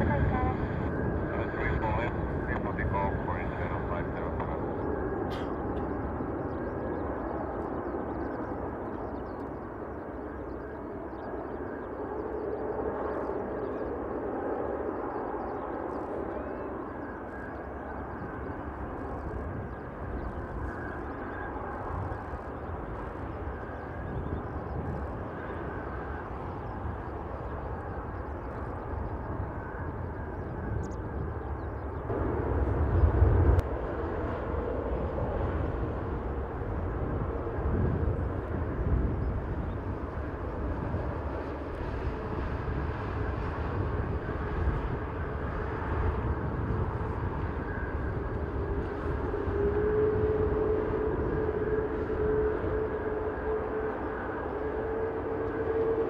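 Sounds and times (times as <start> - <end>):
jet engines rumbling with whine: 0.0 - 56.0.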